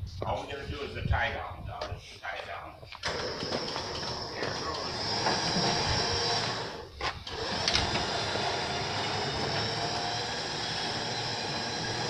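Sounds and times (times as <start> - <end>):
electric winch droning: 3.0 - 12.0.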